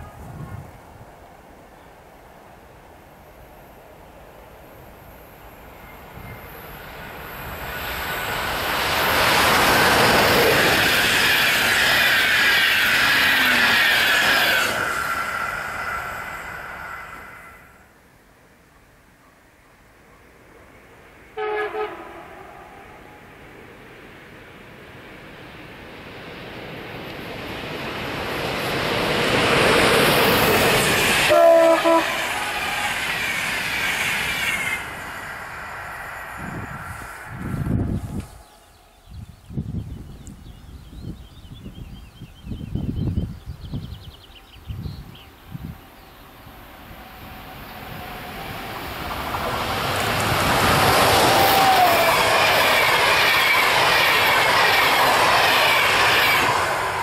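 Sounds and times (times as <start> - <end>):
train horn blast: 0.0 - 0.7, 21.4 - 22.8, 31.3 - 32.6
passenger train passing: 0.0 - 57.0
high squealing wheels on rails: 3.5 - 18.0, 20.7 - 57.0.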